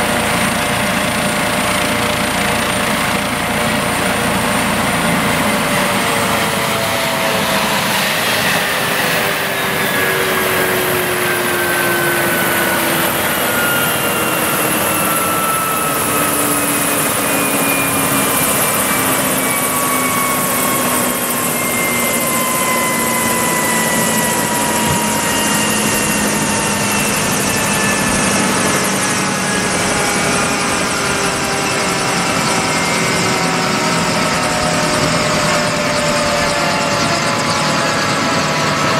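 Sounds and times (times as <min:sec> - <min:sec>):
helicopter turbine and rotor noise: 0:00.0 - 0:38.9
whining tones falling in pitch: 0:00.0 - 0:38.9.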